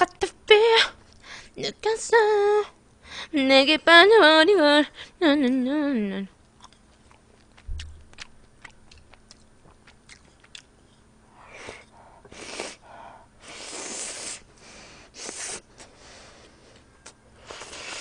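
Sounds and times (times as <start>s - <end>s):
chewing: 6.4s - 11.0s
noisy noodle slurps: 13.4s - 14.4s, 15.2s - 15.6s.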